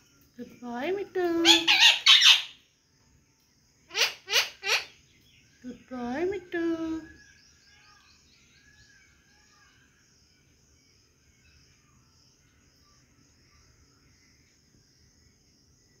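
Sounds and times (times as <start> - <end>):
faint high chirps: 4.2 - 14.8.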